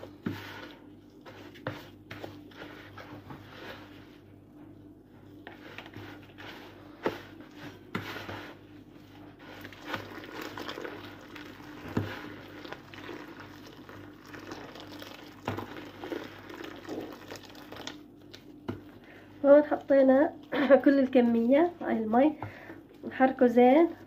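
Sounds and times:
spoon stirring grainy mix: 0:00.0 - 0:04.2, 0:04.8 - 0:23.2
water pouring: 0:09.6 - 0:18.0.

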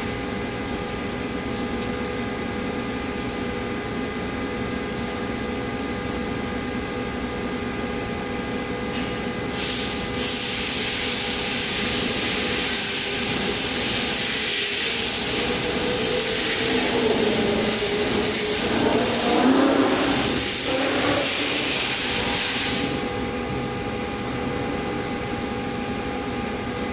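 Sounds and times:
machine hum with whine: 0:00.0 - 0:26.9
loud water jet hiss: 0:09.6 - 0:22.9.

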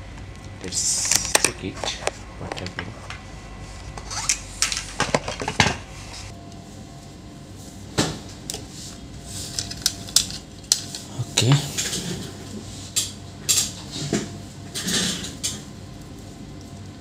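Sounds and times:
small parts clicking and tapping: 0:09.5 - 0:11.1.

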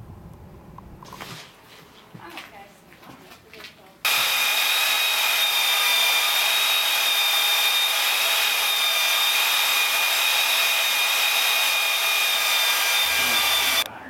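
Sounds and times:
power tool high whine: 0:04.1 - 0:13.9.

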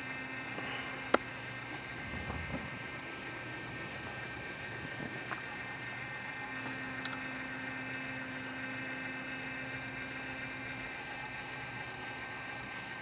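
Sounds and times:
turntable motor humming: 0:00.0 - 0:13.0.

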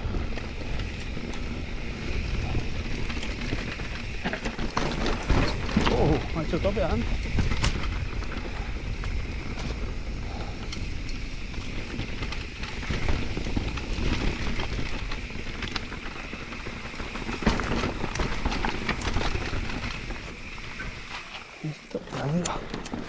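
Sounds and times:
bike rattling: 0:00.0 - 0:23.0
tyres crunching over stones: 0:00.0 - 0:23.0.

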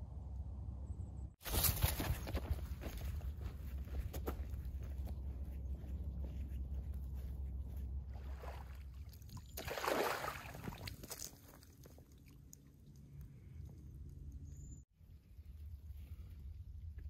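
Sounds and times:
low rumble: 0:00.0 - 0:01.4
footsteps on leafy dirt trail: 0:01.4 - 0:08.2
water bag splashing in pond: 0:08.1 - 0:12.4.

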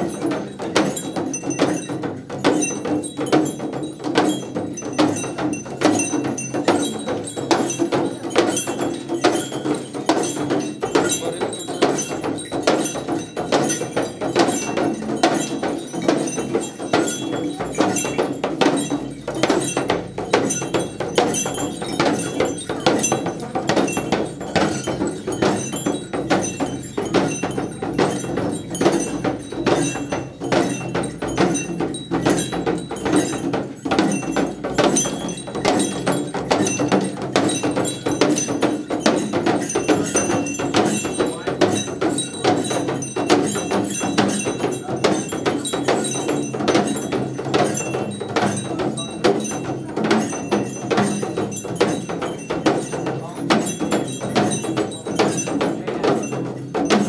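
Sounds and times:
frame drums beaten fast: 0:00.0 - 0:57.0
small metal bells jingling: 0:00.0 - 0:57.0.

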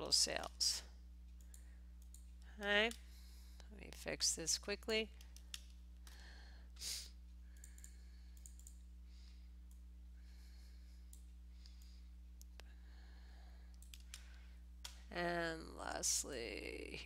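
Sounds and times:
low electrical hum: 0:00.0 - 0:17.0
keyboard and mouse clicks: 0:07.6 - 0:08.8, 0:13.7 - 0:15.0.

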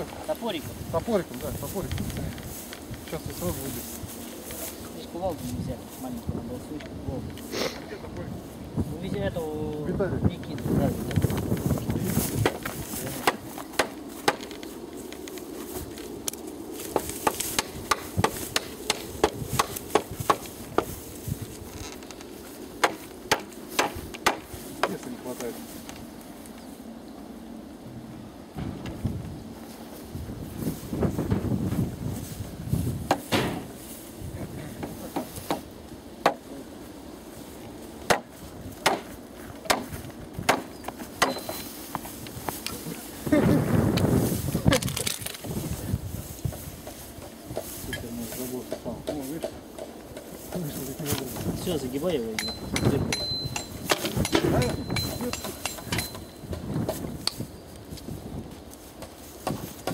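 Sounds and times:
hatchet knocking on wooden posts: 0:12.4 - 0:14.5, 0:16.9 - 0:20.9, 0:22.8 - 0:25.0, 0:38.1 - 0:41.6, 0:48.6 - 0:50.6, 0:52.4 - 0:57.0.

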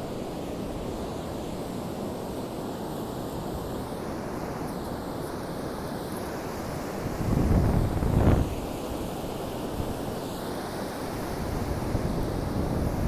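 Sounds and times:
wind on microphone: 0:06.6 - 0:10.2, 0:11.2 - 0:13.0.

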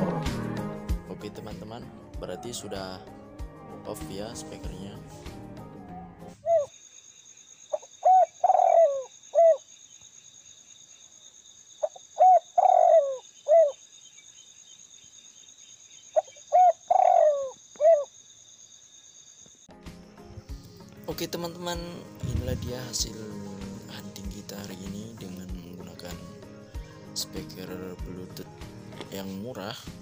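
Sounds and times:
dove cooing: 0:05.8 - 0:06.7, 0:08.0 - 0:09.6, 0:11.8 - 0:13.8, 0:16.2 - 0:18.1.

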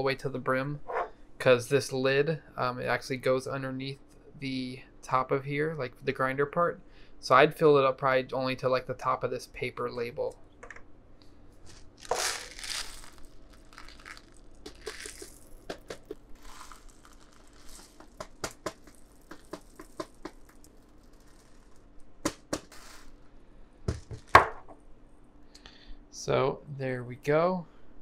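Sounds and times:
peppercorns rattling into glass: 0:12.0 - 0:22.0, 0:22.6 - 0:23.2.

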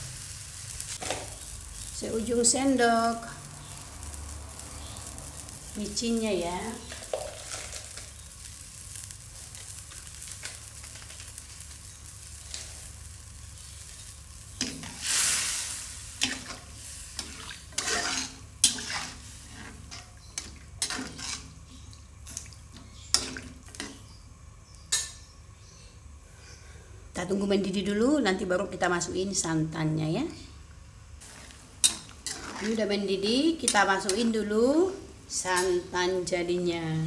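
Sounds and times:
curry hissing in a wok: 0:00.0 - 0:27.8, 0:31.2 - 0:37.0
metal spatula scraping a wok: 0:14.6 - 0:21.8, 0:31.2 - 0:32.9.

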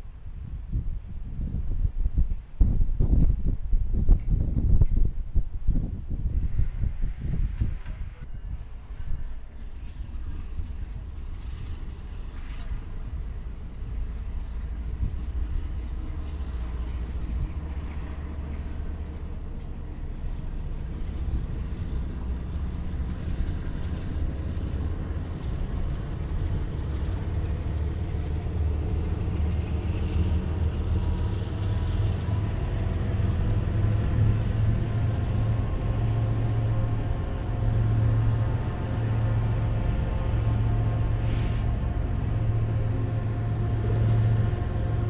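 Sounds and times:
diesel locomotive engines rumbling: 0:00.0 - 0:45.0.

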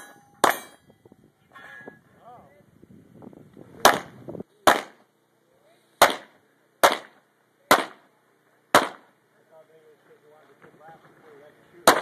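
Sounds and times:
pistol shots: 0:03.8 - 0:05.0, 0:06.0 - 0:08.0, 0:08.7 - 0:09.1.

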